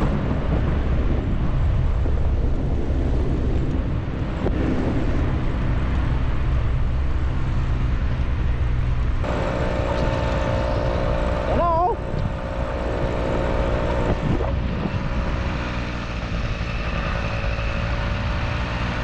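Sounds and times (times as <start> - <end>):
wind rumble on microphone: 0.0 - 19.0
motorcycle engine running: 8.9 - 19.0
higher multi-tone hum: 9.2 - 15.5.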